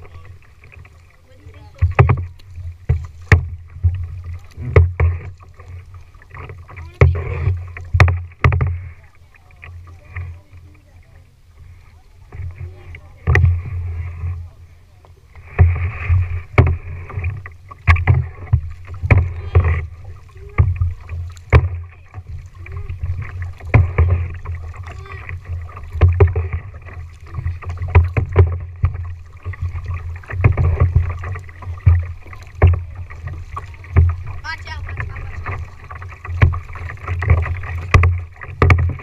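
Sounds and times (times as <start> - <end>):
paddle knocks: 0.0 - 10.8, 11.6 - 14.4, 15.3 - 39.0
paddle splashing in water: 0.0 - 39.0.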